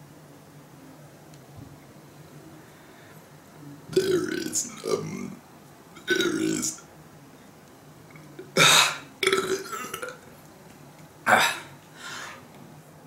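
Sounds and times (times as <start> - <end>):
man burping loudly: 3.9 - 5.4, 6.0 - 6.8, 8.5 - 10.2, 11.3 - 11.7.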